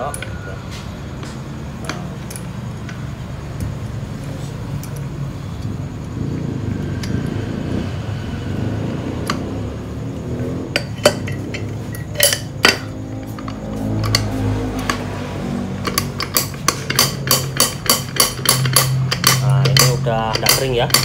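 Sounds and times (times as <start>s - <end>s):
steady low hum: 0.0s - 21.0s
sharp metallic clicks: 1.8s - 3.8s, 10.7s - 21.0s
metal parts clinking and rattling: 10.7s - 14.3s, 15.8s - 21.0s.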